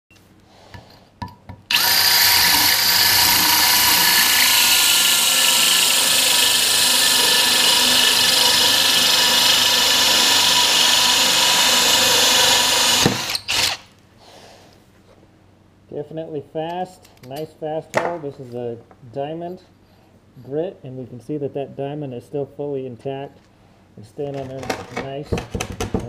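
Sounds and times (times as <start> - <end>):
drill hole saw grinding concrete: 1.7 - 13.9.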